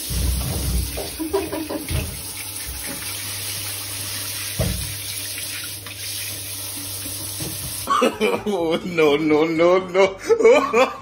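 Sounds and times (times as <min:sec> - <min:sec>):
shower water splashing: 0:00.0 - 0:07.9.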